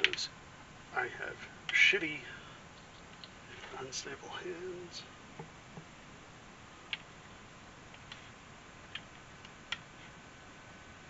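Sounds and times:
room hiss: 0.0 - 11.0
faint sharp clicks and taps: 5.4 - 5.9.

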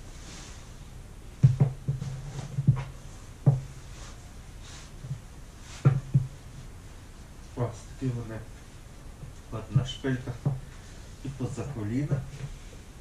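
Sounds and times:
faint rustle: 0.0 - 13.0
boot heel knocking on floor: 1.4 - 3.8, 5.8 - 6.4.

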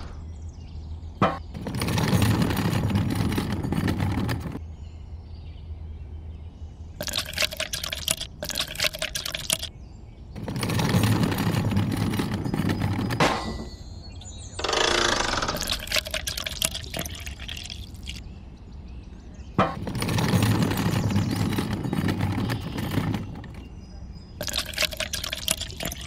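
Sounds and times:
liquid pouring and splashing: 7.0 - 9.7, 15.6 - 18.2, 19.8 - 23.7, 24.4 - 26.0.

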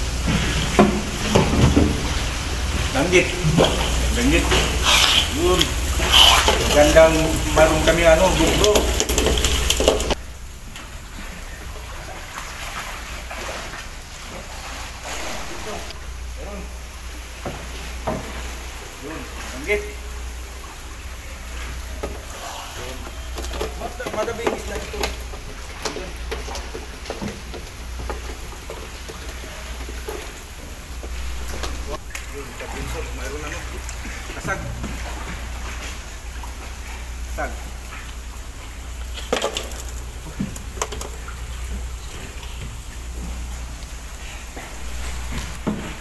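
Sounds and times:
steady low hum: 0.0 - 23.6, 27.6 - 46.0
water lapping against boat: 0.0 - 46.0
steady low rumble: 9.2 - 12.4, 15.0 - 17.4, 30.8 - 34.0.

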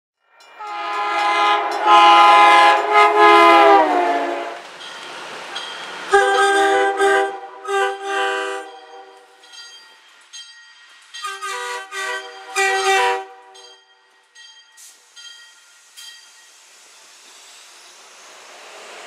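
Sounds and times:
train passing: 0.2 - 19.0
train air horn blasts: 0.6 - 4.6, 6.1 - 9.3, 11.2 - 13.7.

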